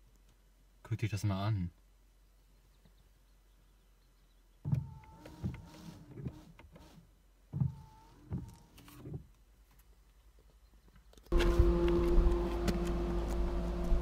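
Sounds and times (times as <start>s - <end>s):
washer pump whine: 11.3s - 14.0s.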